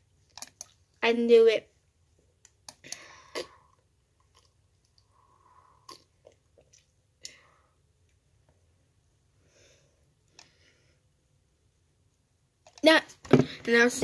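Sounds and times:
person gulping from can: 5.8s - 6.9s.

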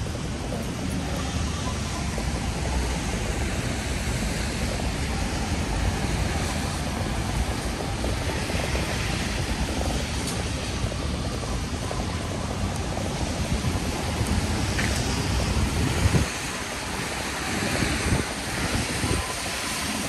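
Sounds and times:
low city rumble: 0.0s - 20.0s
rain hiss: 0.0s - 20.0s.

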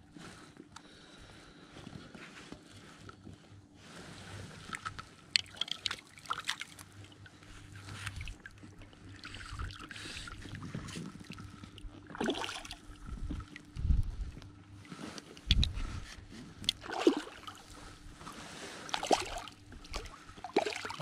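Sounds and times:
water sloshing and lapping: 3.8s - 21.0s
net swishing through water: 16.8s - 21.0s.

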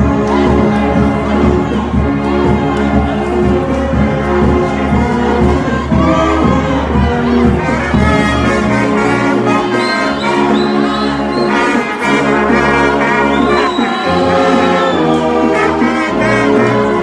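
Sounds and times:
brass band playing: 0.0s - 17.0s
trumpets holding notes: 3.8s - 17.0s.

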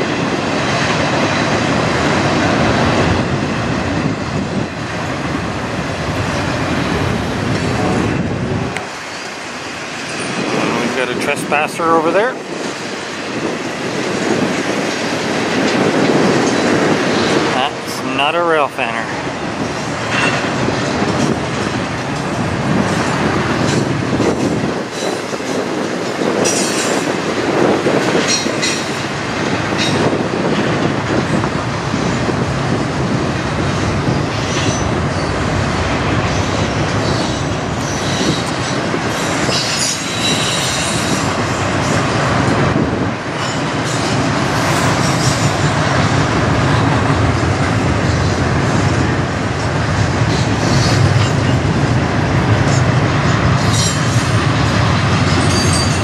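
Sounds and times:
freight train wheels rumbling: 0.0s - 56.0s
train wheel squeals: 23.7s - 25.5s, 34.2s - 35.4s, 36.3s - 42.0s, 50.3s - 51.6s, 53.6s - 54.4s, 55.2s - 56.0s.

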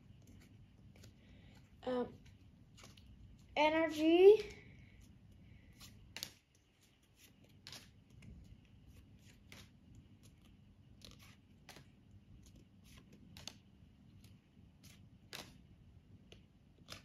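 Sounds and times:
trading cards flicking: 5.8s - 8.2s, 11.0s - 15.7s, 16.8s - 17.0s.

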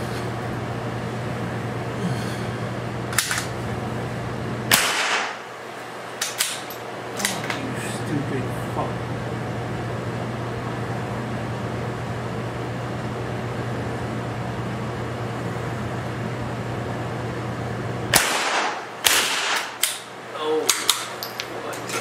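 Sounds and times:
ventilation fan humming: 0.0s - 22.0s
rifle shots: 4.7s - 5.5s, 18.1s - 20.1s.

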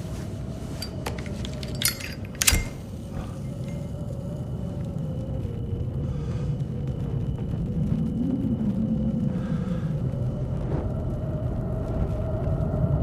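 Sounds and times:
sharp clinks and rattles: 0.7s - 3.9s.

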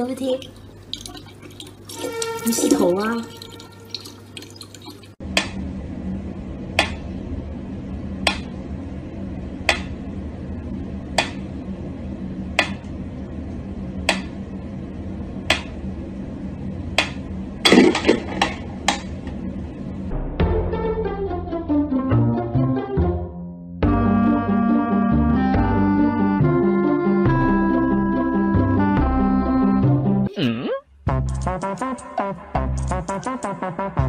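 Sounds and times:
low hum: 5.1s - 21.7s.

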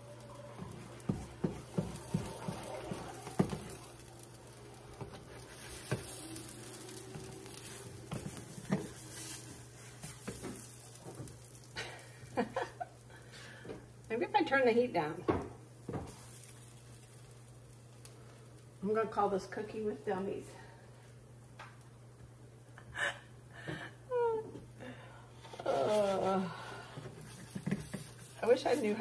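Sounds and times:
faint frying sizzle: 0.0s - 29.0s
spatula scraping and tapping in pan: 0.3s - 11.6s, 27.0s - 29.0s.

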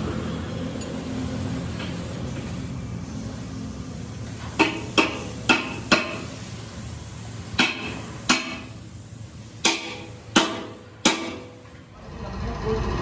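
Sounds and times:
hammer striking metal: 4.6s - 6.3s, 7.6s - 8.8s, 9.6s - 11.7s.

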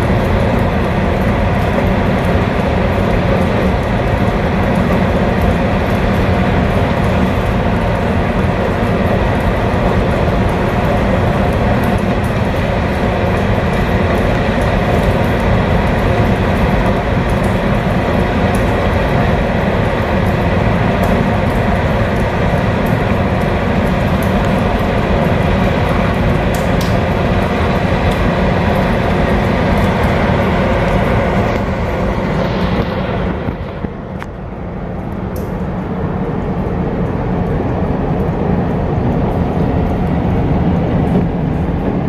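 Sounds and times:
rushing noise: 0.0s - 42.0s
steady mechanical rumble: 0.0s - 42.0s.

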